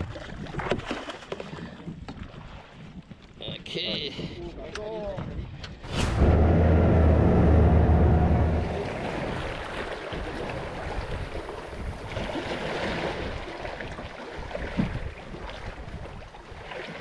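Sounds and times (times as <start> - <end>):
water against hull: 0.0 - 17.0
wind: 0.0 - 17.0
boat engine humming: 5.9 - 12.4.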